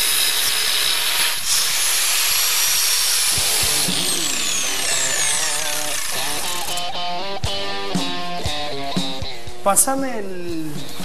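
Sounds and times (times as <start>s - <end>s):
angle grinder grinding steel: 0.0s - 6.9s
guitar music: 3.4s - 11.0s.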